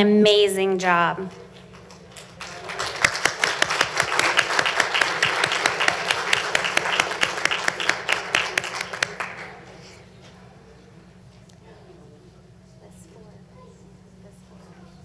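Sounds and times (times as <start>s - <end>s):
audience applauding: 1.3s - 9.9s.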